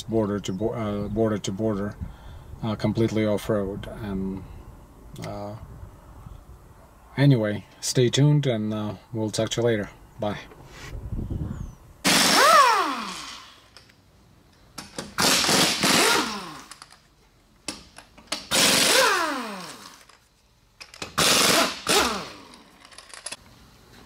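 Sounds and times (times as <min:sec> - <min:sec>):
pneumatic impact wrench hammering: 0:12.0 - 0:13.8, 0:14.8 - 0:17.0, 0:17.7 - 0:20.1, 0:20.8 - 0:23.4.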